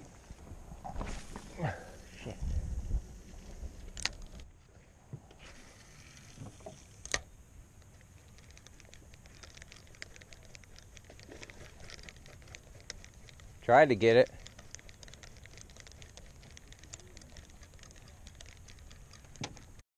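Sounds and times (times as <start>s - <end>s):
fishing reel ticking: 3.1s - 4.4s, 5.4s - 19.8s
sharp clicks: 7.0s - 19.8s.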